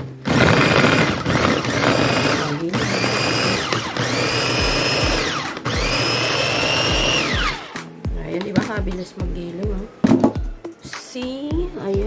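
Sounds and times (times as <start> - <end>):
food chopper motor whine: 0.0 - 7.8
blades chopping vegetables: 0.0 - 7.9.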